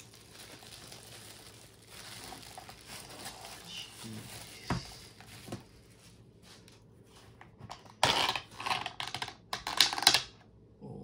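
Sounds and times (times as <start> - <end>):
food packaging crinkling: 0.0 - 6.0.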